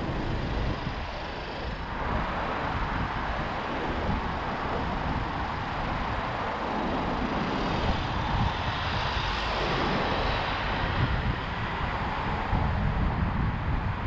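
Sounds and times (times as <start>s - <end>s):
tyre and wind road noise: 0.0s - 14.0s.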